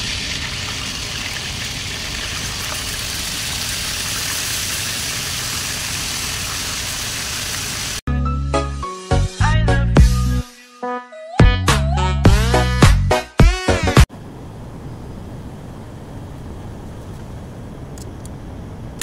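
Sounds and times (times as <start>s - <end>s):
chicken deep-frying in oil: 0.0s - 8.0s
music: 8.1s - 14.1s.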